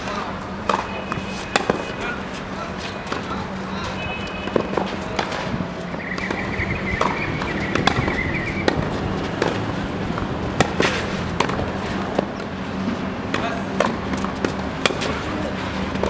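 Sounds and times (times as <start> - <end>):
racket striking tennis ball: 0.6 - 16.0
ball bouncing on clay: 6.1 - 12.5.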